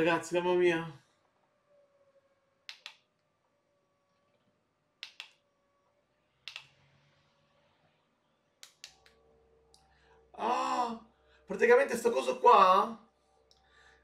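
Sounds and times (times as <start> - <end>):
faint low hum: 0.0 - 14.0
remote button clicks: 2.7 - 3.0, 5.0 - 5.4, 6.5 - 6.7.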